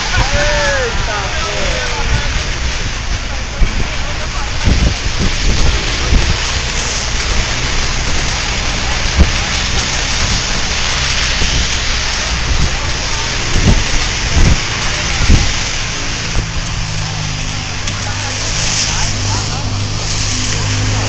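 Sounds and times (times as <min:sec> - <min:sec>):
heavy rain and wind: 0:00.0 - 0:21.0
low thumps: 0:01.9 - 0:21.0.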